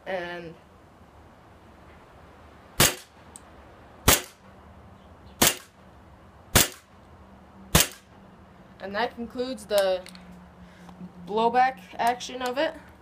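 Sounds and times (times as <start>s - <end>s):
airsoft pistol shots: 2.8s - 3.1s, 4.0s - 4.4s, 5.4s - 5.8s, 6.5s - 6.9s, 7.7s - 8.1s.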